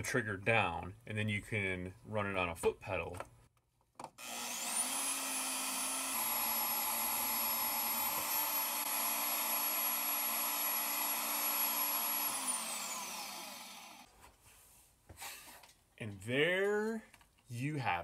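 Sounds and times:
band saw cutting steel tube: 4.2s - 14.1s.

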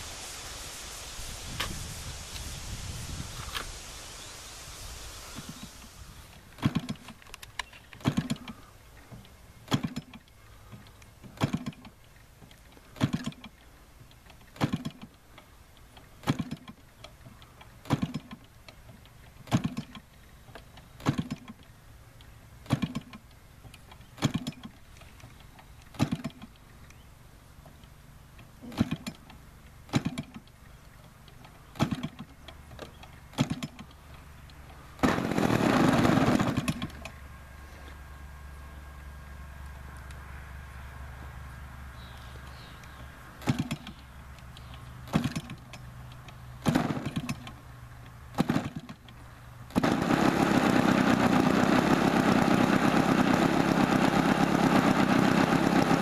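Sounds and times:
model engine pop and thump: 6.5s - 12.0s, 12.9s - 13.6s, 14.4s - 15.2s, 16.2s - 16.8s, 17.8s - 18.5s, 19.4s - 21.6s, 22.6s - 23.3s, 24.2s - 24.8s, 25.9s - 26.6s, 28.6s - 34.0s, 35.0s - 37.2s, 43.4s - 44.0s, 44.7s - 45.9s, 46.6s - 47.6s, 48.3s - 49.1s
model airplane engine running: 34.8s - 38.0s, 49.7s - 56.0s.

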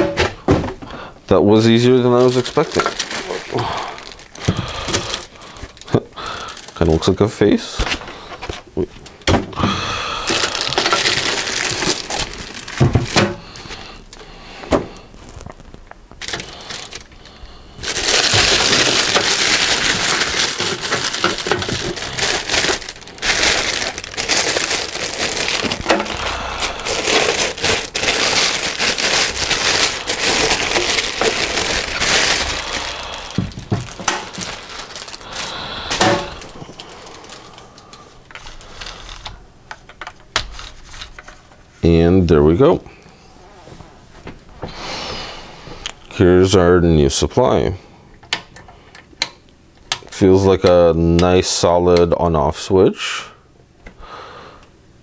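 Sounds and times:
plastic bag crinkling: 1.5s - 9.2s, 10.1s - 39.4s
foam packing scraping: 10.2s - 14.0s, 17.8s - 37.6s.

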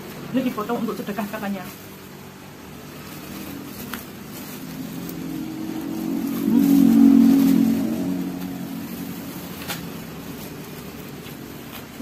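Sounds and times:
vehicle engine passing by: 3.0s - 11.2s.

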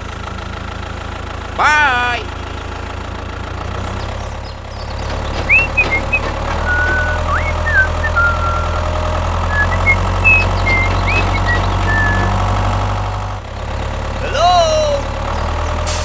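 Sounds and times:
tractor engine idling: 0.0s - 16.0s
short high chirps: 5.5s - 8.8s, 9.5s - 12.4s.

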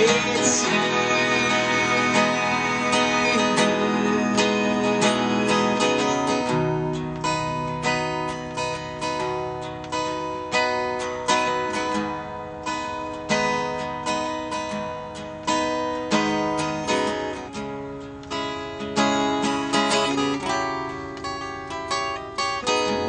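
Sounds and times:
electric guitar: 0.0s - 14.0s
acoustic guitar strumming chords: 0.0s - 23.0s.

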